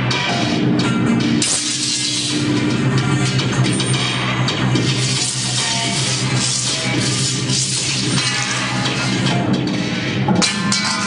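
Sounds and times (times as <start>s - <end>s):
harsh metallic noise: 0.0s - 11.0s
low electronic drone: 0.0s - 11.0s.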